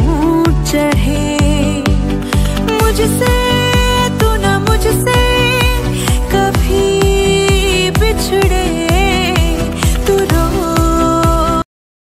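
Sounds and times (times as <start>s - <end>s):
dance music with kick drum: 0.0s - 11.6s.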